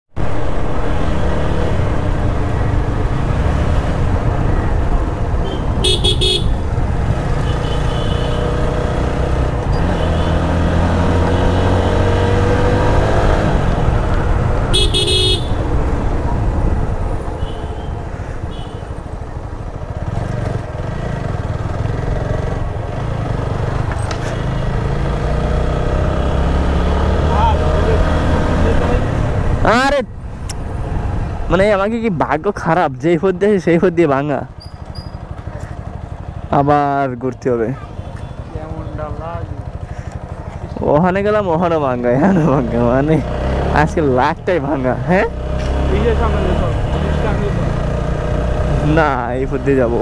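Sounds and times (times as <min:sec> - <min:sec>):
road noise: 0:00.1 - 0:50.0
motorcycle engine: 0:00.2 - 0:32.0, 0:32.6 - 0:50.0
vehicle horn beeps: 0:05.4 - 0:06.6, 0:07.4 - 0:08.5, 0:14.7 - 0:15.6.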